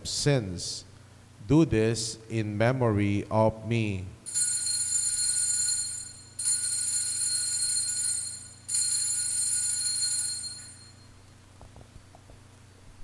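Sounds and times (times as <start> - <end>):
altar bell ringing: 4.3 - 11.2.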